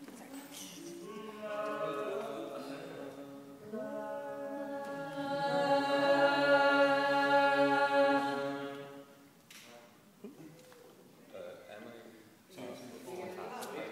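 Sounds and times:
unaccompanied choir holding chord: 0.9 - 9.3.

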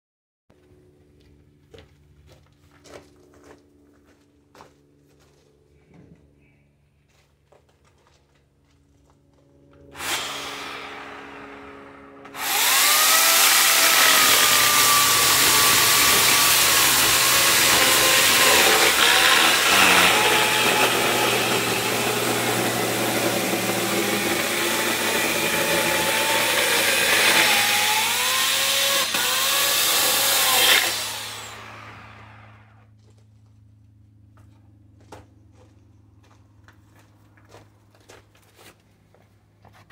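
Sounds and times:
electric chainsaw cutting log: 9.8 - 32.8.

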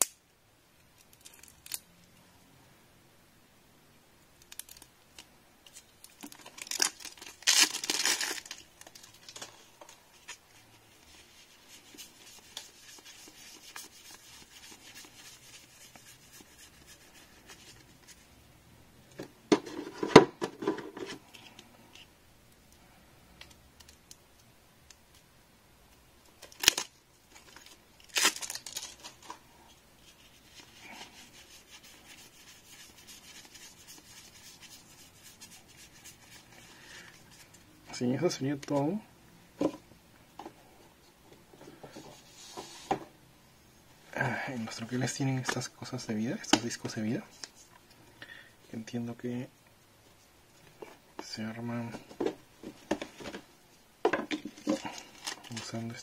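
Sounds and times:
wrapper crinkling: 6.0 - 17.8, 26.4 - 29.4, 54.5 - 55.7
plastic wrap tearing: 6.1 - 9.5, 26.4 - 26.9, 27.5 - 29.3.

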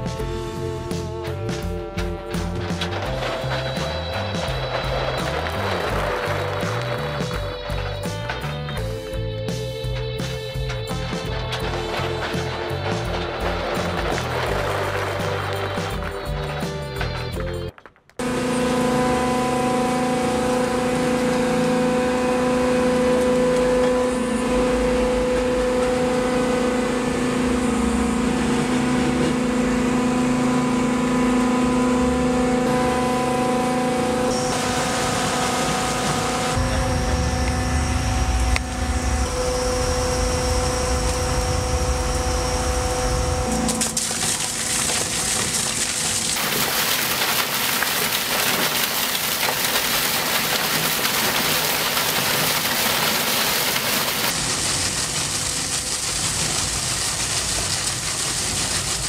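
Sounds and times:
mining machine humming: 0.0 - 59.0.

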